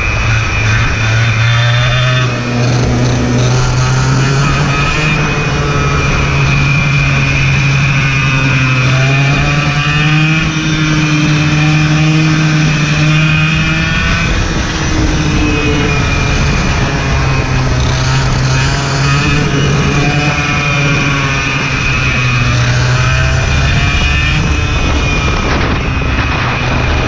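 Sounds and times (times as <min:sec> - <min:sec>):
kart engine running hard: 0:00.0 - 0:27.0
steady rushing noise: 0:00.0 - 0:27.0.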